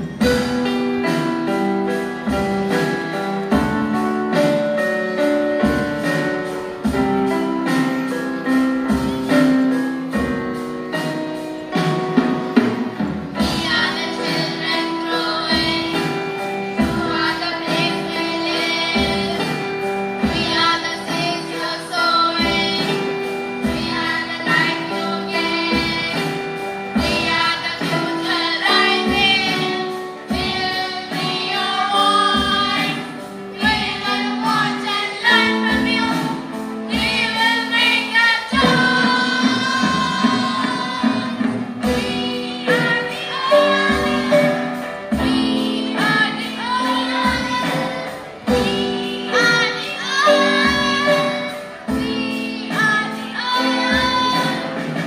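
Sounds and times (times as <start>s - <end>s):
children's choir singing: 0.0s - 55.0s.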